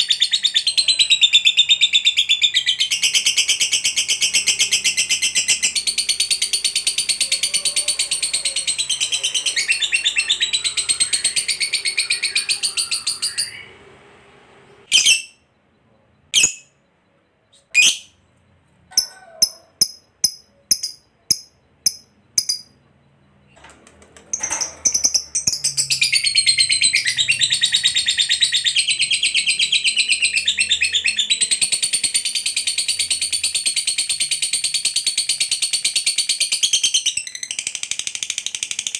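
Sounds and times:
lovebird rapid chattering: 16.4s - 16.7s, 18.9s - 22.8s.

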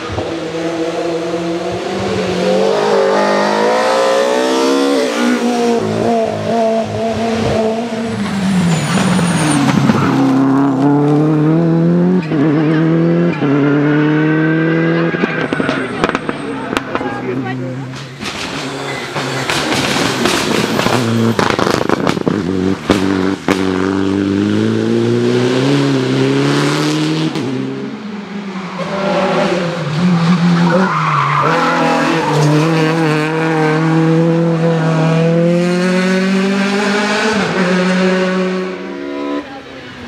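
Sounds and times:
car at high revs: 0.0s - 40.0s
rally car engine: 0.0s - 40.0s.

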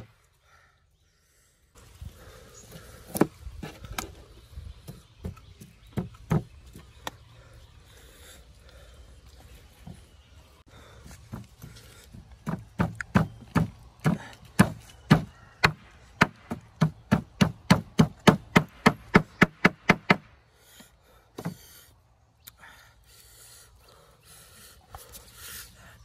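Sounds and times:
blade chopping wood: 12.4s - 20.3s.

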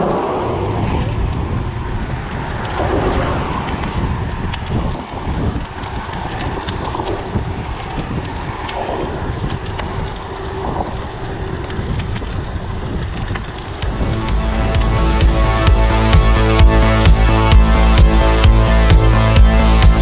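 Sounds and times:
wind buffeting microphone: 0.0s - 14.6s
bike clicks and rattles: 3.6s - 13.9s.

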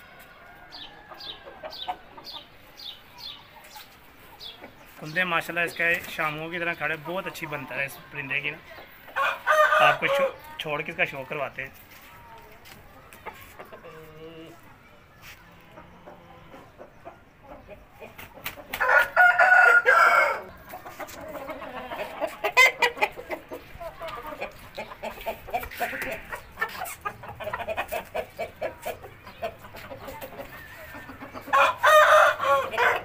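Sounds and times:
rooster crowing: 9.2s - 10.4s, 18.8s - 20.5s, 31.5s - 33.0s.

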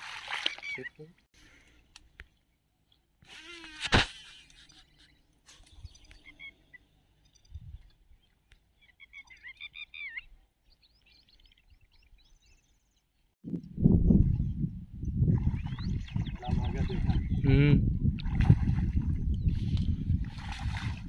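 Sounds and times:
birds chirping: 0.4s - 1.3s, 4.4s - 13.4s, 14.6s - 17.8s.

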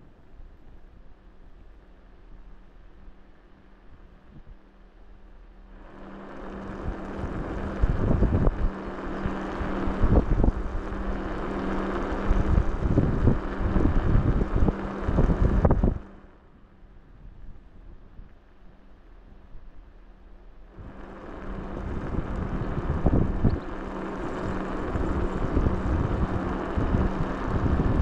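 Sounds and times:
faint steady hum: 0.0s - 28.0s
wind buffeting microphone: 6.3s - 16.2s, 20.7s - 28.0s.

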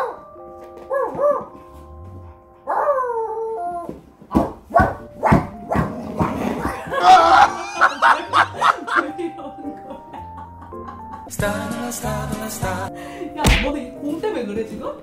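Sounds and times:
background music: 0.0s - 15.0s
dog barking: 0.9s - 1.6s, 2.6s - 3.1s, 4.4s - 6.8s
woman laughing: 6.8s - 11.3s.

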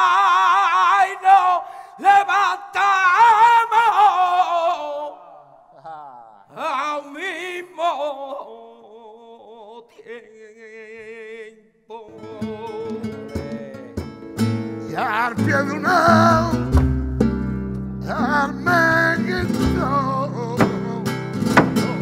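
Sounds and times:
person singing flamenco: 12.0s - 22.0s
flamenco guitar: 12.1s - 22.0s.

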